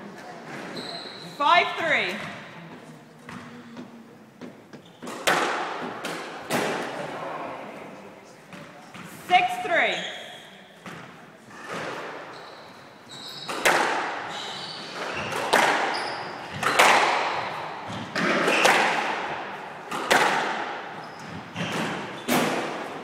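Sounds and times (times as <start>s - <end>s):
shoes squeaking on wooden floor: 0.4s - 1.5s, 2.7s - 5.3s, 8.5s - 18.8s, 21.0s - 22.5s
squash ball hitting racket and walls: 1.9s - 7.2s, 8.5s - 23.0s.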